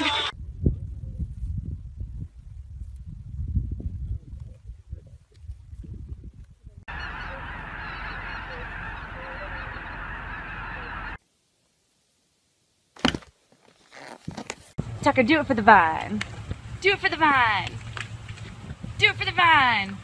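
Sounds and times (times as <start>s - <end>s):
geese honking in flight: 6.9s - 11.2s.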